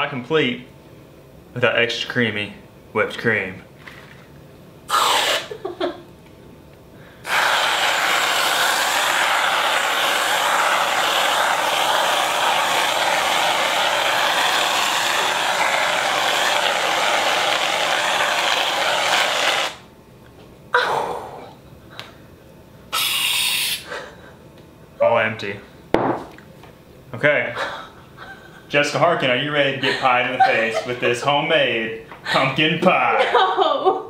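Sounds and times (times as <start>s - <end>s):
aerosol whipped cream spraying: 4.9s - 5.6s, 7.2s - 19.8s, 23.0s - 23.8s.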